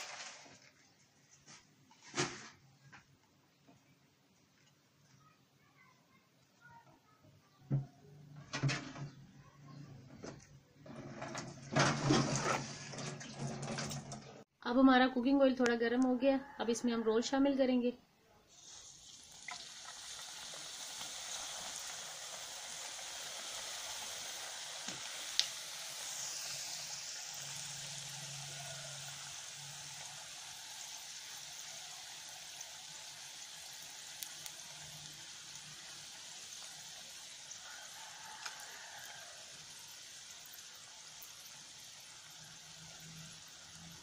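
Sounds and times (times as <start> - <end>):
food sizzling in hot oil: 0.0 - 0.6, 18.5 - 44.0.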